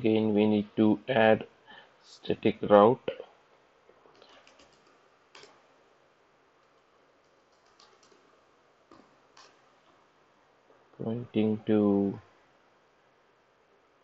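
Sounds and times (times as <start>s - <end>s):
typing on computer keyboard: 4.2s - 5.6s, 6.6s - 8.3s.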